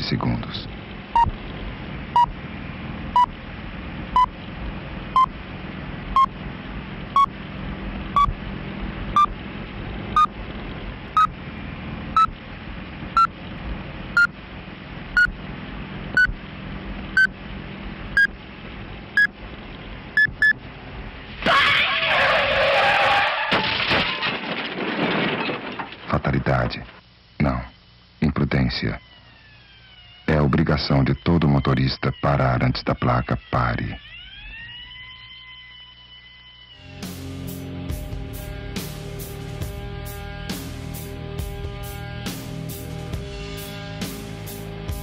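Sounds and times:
steady low hum: 0:00.0 - 0:21.4
electronic countdown beeps: 0:08.2 - 0:08.4, 0:09.2 - 0:09.4, 0:12.2 - 0:12.4, 0:15.2 - 0:15.4, 0:16.2 - 0:16.4, 0:17.2 - 0:17.4, 0:18.2 - 0:18.4, 0:20.2 - 0:20.6.

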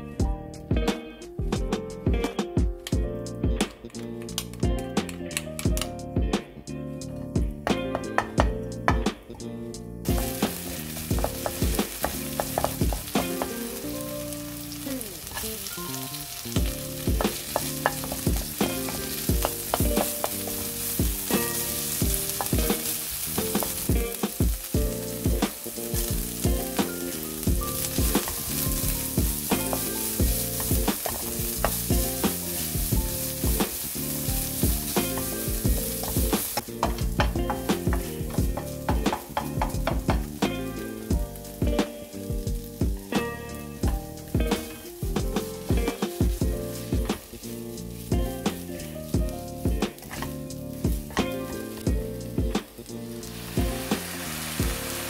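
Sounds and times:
vegetables sizzling in hot oil: 0:10.0 - 0:55.0
spatula scraping and tapping pan: 0:10.1 - 0:13.6, 0:17.0 - 0:24.2, 0:27.5 - 0:40.4.

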